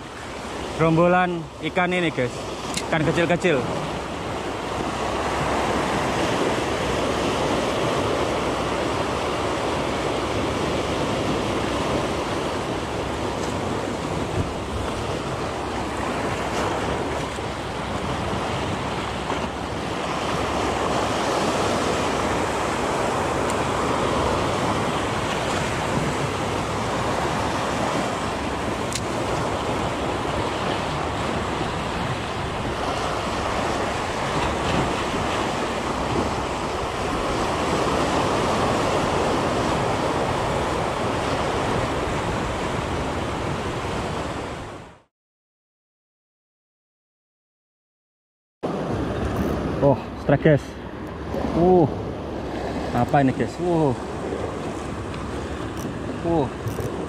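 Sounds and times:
waves breaking on rocks: 0:00.0 - 0:44.6
wind on microphone: 0:03.6 - 0:45.0, 0:48.7 - 0:50.2, 0:53.9 - 0:57.0.

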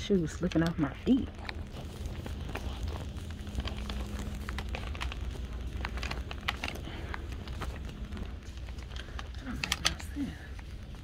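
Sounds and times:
low camera handling rumble: 0:00.5 - 0:11.0.

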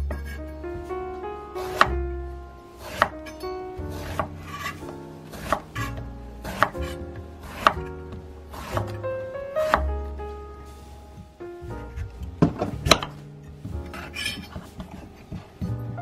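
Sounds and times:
light background music: 0:00.0 - 0:16.0
knife chopping on wooden board: 0:03.9 - 0:04.7, 0:05.3 - 0:07.9, 0:08.5 - 0:09.0, 0:09.7 - 0:09.9.

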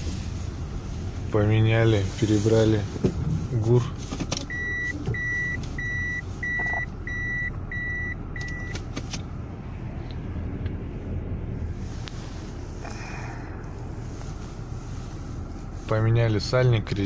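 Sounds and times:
car engine hum: 0:00.0 - 0:17.0
reversing beeper beeping: 0:04.5 - 0:08.7.

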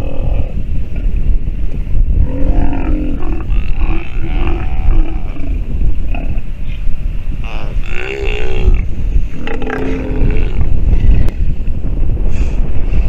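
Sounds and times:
wind rumble on microphone: 0:00.0 - 0:13.0
sea lions growling: 0:02.2 - 0:06.8, 0:07.4 - 0:11.3.

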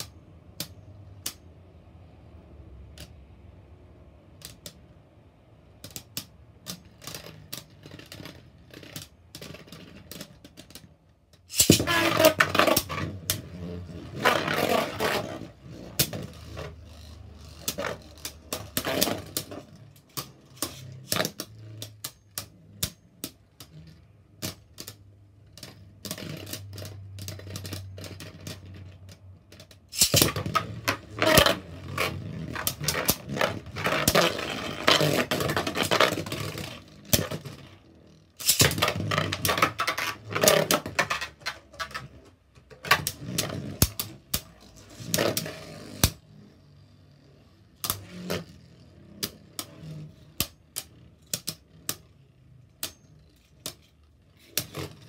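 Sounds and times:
spinning tops clashing in plastic stadium: 0:05.6 - 0:46.2.

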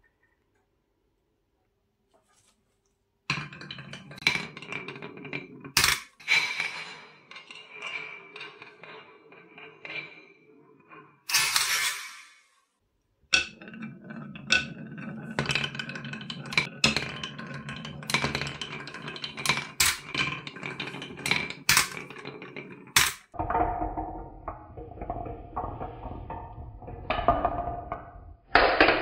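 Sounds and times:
marble rolling on wooden track: 0:03.3 - 0:12.7, 0:13.3 - 0:29.0
marble clacking in plastic truck: 0:13.3 - 0:29.0.

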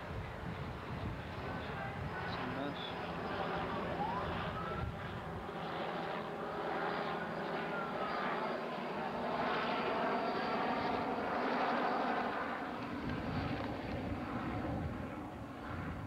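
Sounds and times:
steady engine drone: 0:00.0 - 0:11.2
faint gliding whistles: 0:03.7 - 0:05.2, 0:06.4 - 0:08.9.

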